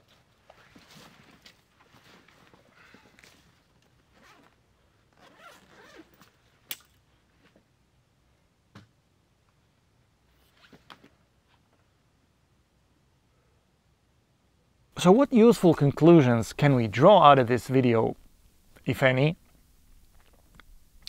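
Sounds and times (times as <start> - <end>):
fabric rustling: 0.0 - 7.6
zipper pulled: 4.1 - 6.4.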